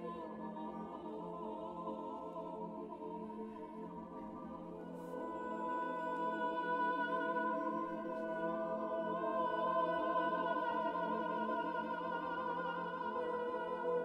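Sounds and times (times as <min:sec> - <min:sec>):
choir singing sustained chord: 0:00.0 - 0:14.0.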